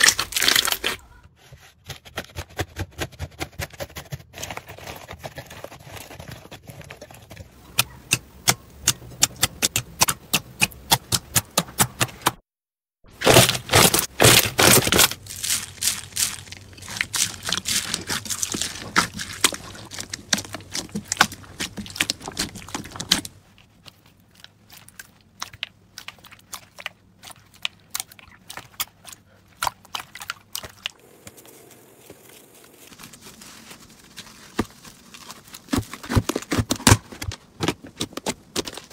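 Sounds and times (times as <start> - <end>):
slime crackling and squelching: 0.0 - 1.2, 13.1 - 38.9.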